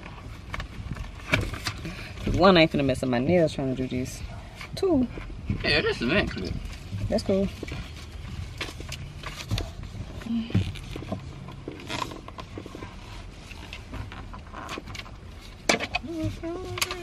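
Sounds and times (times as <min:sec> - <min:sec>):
rubbing and scraping cover: 0:05.2 - 0:17.0.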